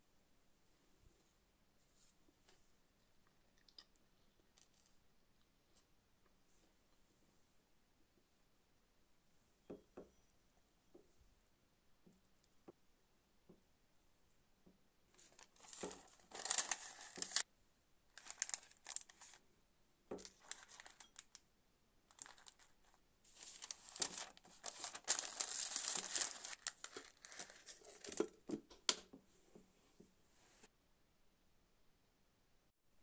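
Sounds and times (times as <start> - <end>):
baking paper crinkling: 15.2 - 17.4, 18.2 - 19.4, 20.1 - 21.4, 22.1 - 28.5.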